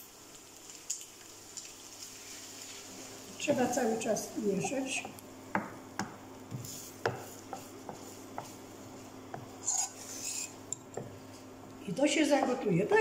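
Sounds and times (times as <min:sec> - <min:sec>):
wooden spoon stirring sauce: 0:03.4 - 0:11.4.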